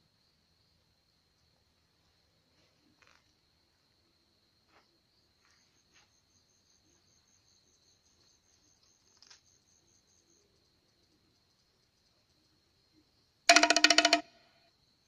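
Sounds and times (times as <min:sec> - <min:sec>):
insect high trill: 0:13.5 - 0:14.5
insect pulsing call: 0:13.5 - 0:14.6.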